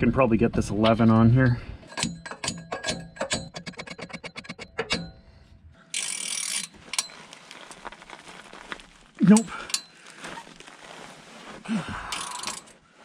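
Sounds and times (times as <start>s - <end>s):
ratchet wrench clicking: 1.9s - 5.2s, 5.9s - 7.1s, 12.2s - 12.7s.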